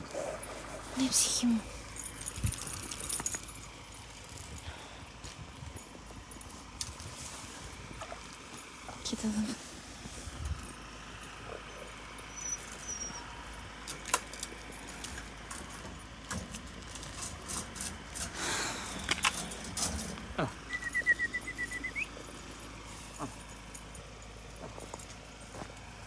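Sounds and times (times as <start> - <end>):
metal chain clinking: 0.3 - 4.6.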